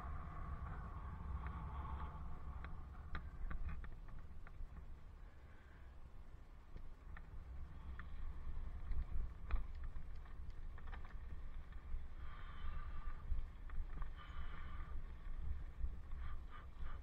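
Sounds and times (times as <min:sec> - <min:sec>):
wind rumbling on microphone: 0:00.0 - 0:17.0
bicycle clicks and rattles: 0:06.8 - 0:12.8.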